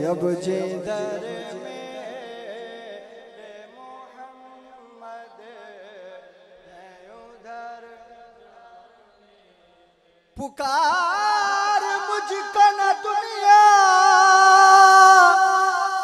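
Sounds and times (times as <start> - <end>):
loud close voice on microphone: 0.0 - 4.0
men chanting drone-like: 0.0 - 9.6.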